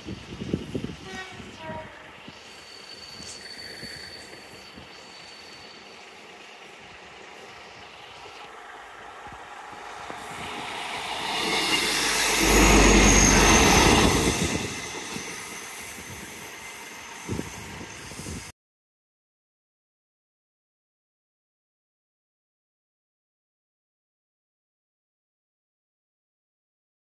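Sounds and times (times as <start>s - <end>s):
diesel train passing: 0.0s - 18.5s.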